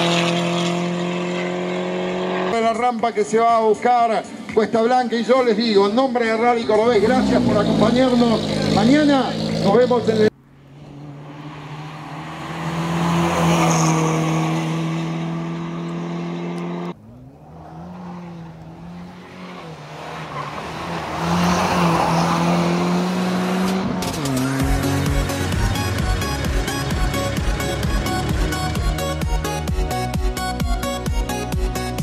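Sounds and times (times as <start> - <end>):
rally car engine at high revs: 0.0 - 2.7, 6.9 - 29.5
music with steady beat: 24.4 - 32.0.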